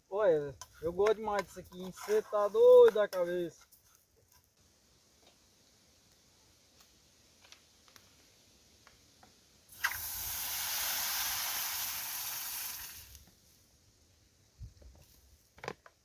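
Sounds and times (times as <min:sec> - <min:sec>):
water hissing in hot pan: 0:09.7 - 0:13.2.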